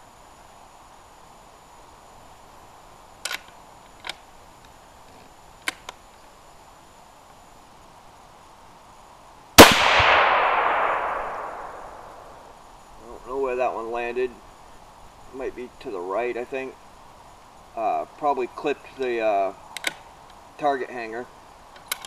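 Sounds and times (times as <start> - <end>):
rifle shot echoing: 9.6 - 12.5.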